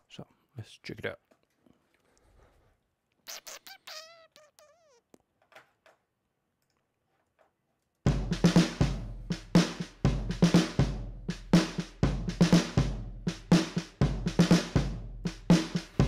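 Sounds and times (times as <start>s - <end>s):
drum beat with kick and snare: 8.1s - 16.0s.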